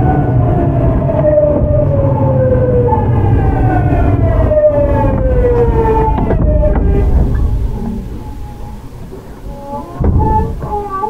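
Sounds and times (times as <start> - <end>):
train inverter whining: 0.0 - 11.0
wheels rumbling on track: 0.0 - 11.0.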